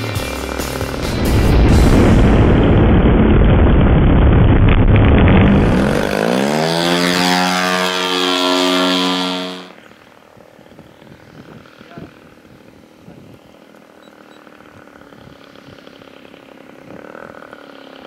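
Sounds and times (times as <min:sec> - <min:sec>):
model plane engine and propeller: 0:00.0 - 0:01.3, 0:05.4 - 0:18.0
wind noise: 0:01.0 - 0:07.1, 0:09.7 - 0:13.6.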